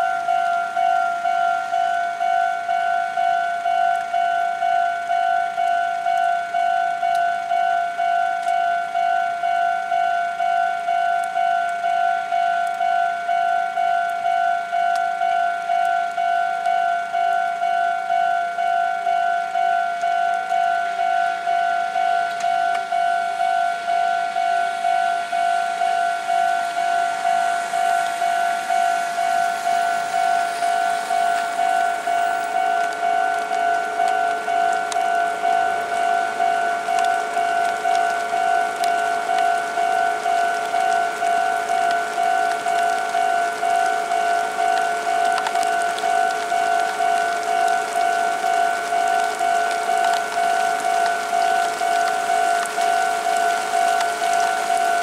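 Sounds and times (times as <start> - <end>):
level crossing warning bell: 0.0 - 55.0.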